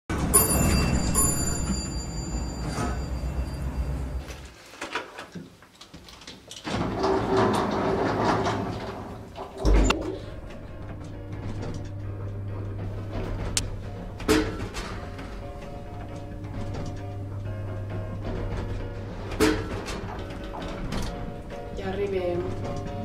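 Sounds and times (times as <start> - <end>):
lift doors sliding: 6.5 - 23.0
lift machinery running: 6.7 - 23.0
low lift rumble: 6.9 - 23.0.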